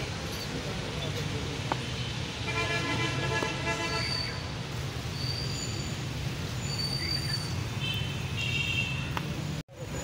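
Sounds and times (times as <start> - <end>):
traffic hum: 0.0 - 10.0
vehicle horn: 2.4 - 4.4.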